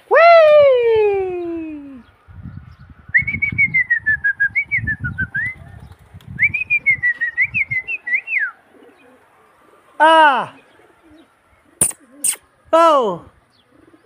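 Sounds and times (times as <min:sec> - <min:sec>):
person whistling a trilled whistle: 0:03.2 - 0:05.5.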